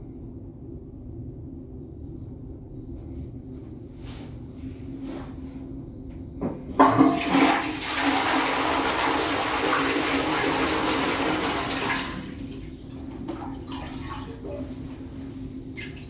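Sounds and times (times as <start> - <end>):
toilet flush click: 6.8 - 12.2
toilet water rushing: 6.8 - 14.6.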